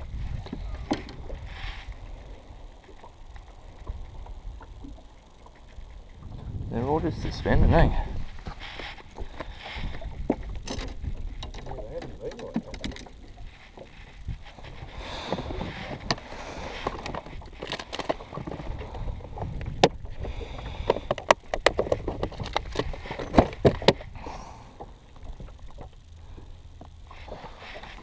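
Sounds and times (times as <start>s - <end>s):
low rumble: 0.0s - 11.9s.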